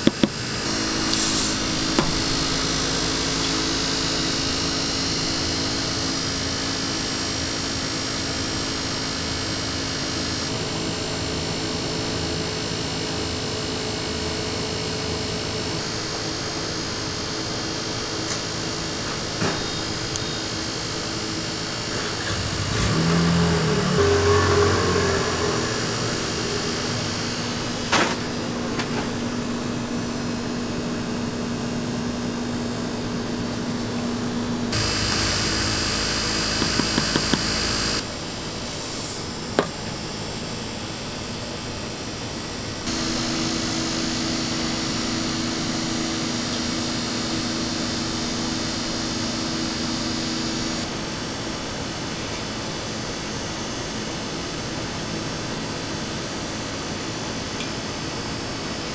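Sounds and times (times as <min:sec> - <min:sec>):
cotton candy machine motor hum: 0:00.0 - 0:12.4, 0:15.8 - 0:38.0.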